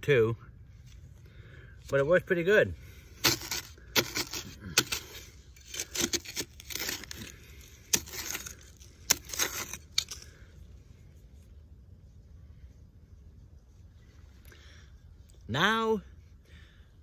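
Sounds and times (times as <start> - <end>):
shovel scraping into sandy soil: 2.9 - 10.5.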